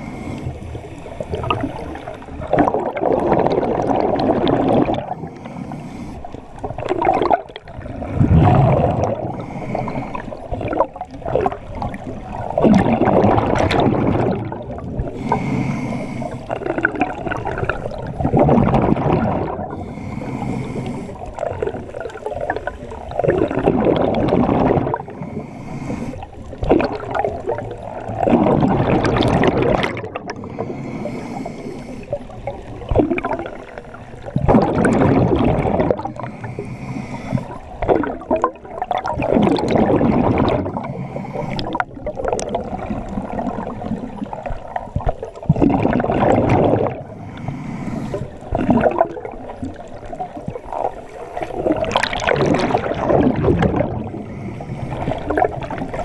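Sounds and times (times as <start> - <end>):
regulator hissing inhale: 0.0 - 2.3, 5.1 - 6.5, 9.3 - 10.5, 15.0 - 16.6, 19.7 - 21.5, 25.0 - 26.4, 30.4 - 32.3, 36.1 - 37.7, 40.8 - 41.8, 47.1 - 48.5, 54.0 - 55.6
gurgling exhaled bubbles: 0.0 - 56.0.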